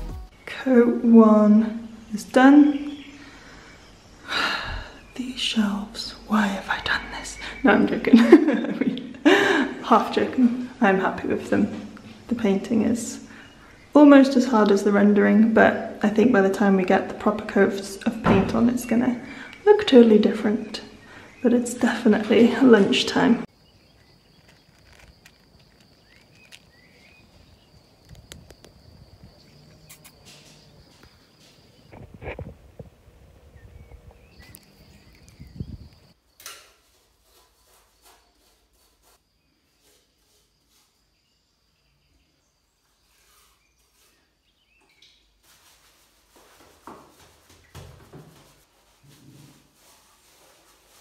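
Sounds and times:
high-pitched insect trill: 23.5 - 32.0
cats crunching dry kibble: 24.0 - 26.8
bird chirps: 33.5 - 36.1.

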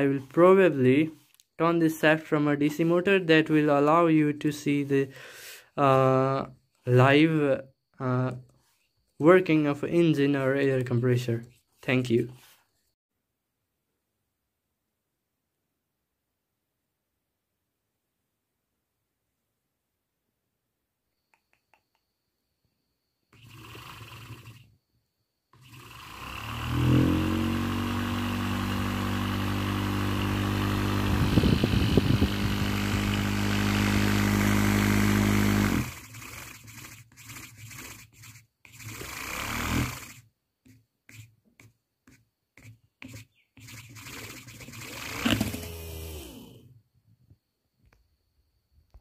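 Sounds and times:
compressor rattling: 25.6 - 37.0, 43.9 - 45.9
electric motor humming: 25.6 - 37.8, 38.7 - 40.2, 43.6 - 46.6
motor stop-start bursts: 25.6 - 37.8, 38.8 - 40.2, 43.7 - 46.6.

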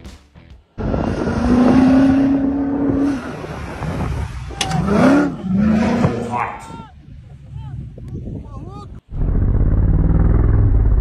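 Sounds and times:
suv engine revving: 0.8 - 6.4.

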